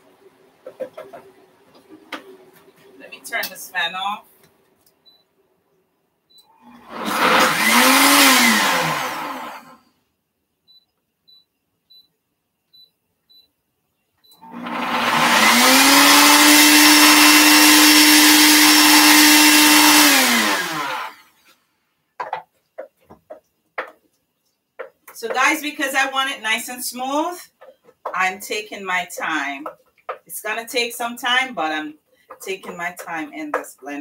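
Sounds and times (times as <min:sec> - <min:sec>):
blender motor pureeing: 0:06.6 - 0:09.8, 0:14.4 - 0:21.3.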